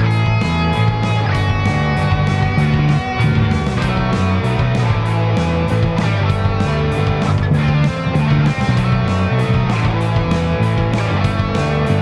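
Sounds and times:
instrumental rock music: 0.0 - 12.0.

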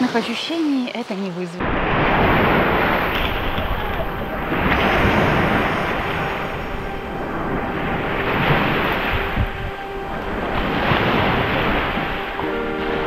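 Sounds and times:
waves breaking on sandy beach: 0.0 - 13.0
wind buffeting microphone: 1.6 - 13.0.

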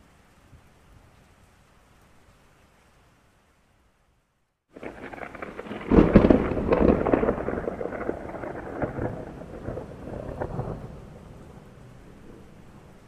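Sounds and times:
thunder crack and rumble: 4.7 - 13.0.

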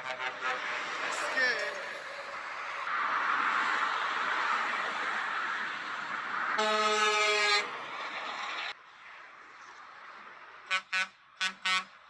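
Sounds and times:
truck air horn blast: 0.0 - 1.3, 6.6 - 7.8, 10.7 - 12.0
motorway traffic noise: 0.0 - 12.0.

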